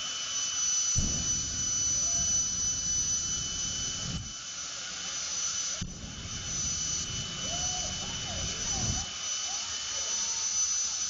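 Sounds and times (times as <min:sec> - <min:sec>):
jet engine whine: 0:00.0 - 0:11.0
deep rumble: 0:01.0 - 0:04.5, 0:05.8 - 0:09.1.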